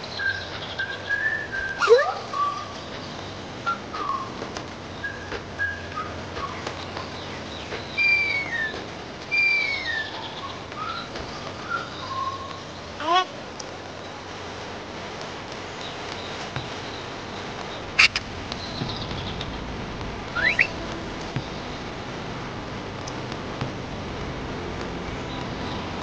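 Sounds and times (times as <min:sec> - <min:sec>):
bird whistles falling in pitch: 0:08.0 - 0:10.2, 0:20.4 - 0:20.8
birds chirping: 0:15.6 - 0:22.2.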